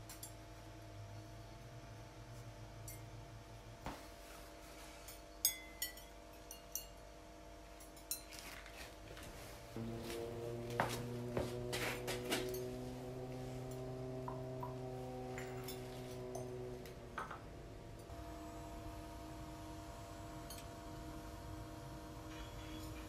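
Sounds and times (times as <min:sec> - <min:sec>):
low steady hum: 0:00.0 - 0:23.0
music: 0:09.8 - 0:12.7
pottery clinking: 0:13.8 - 0:16.5.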